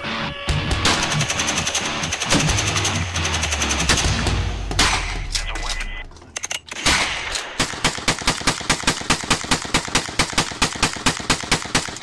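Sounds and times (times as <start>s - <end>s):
rifle rapid fire: 0.8s - 5.3s, 6.7s - 12.0s.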